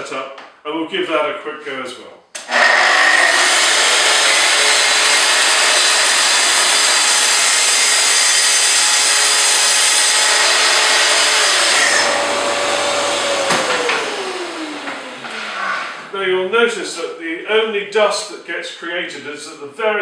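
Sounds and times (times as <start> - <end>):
circular saw cutting worktop: 2.4 - 16.2
motor winding down whine: 10.2 - 16.1.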